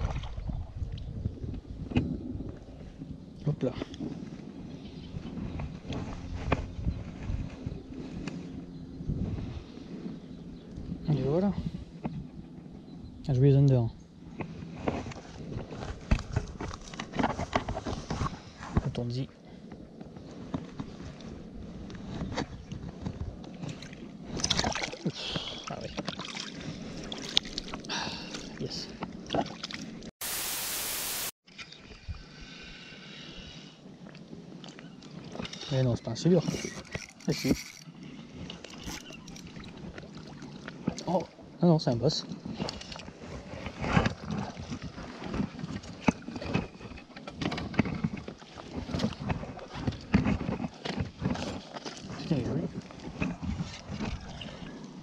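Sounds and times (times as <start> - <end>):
water splashing and sloshing: 0.0 - 1.0, 22.2 - 30.1, 36.4 - 41.6, 42.2 - 55.0
wind on microphone: 0.0 - 13.3, 42.2 - 55.0
water sloshing: 23.7 - 30.1
static hiss: 30.2 - 31.3
fishing tackle clicks and knocks: 36.4 - 39.8.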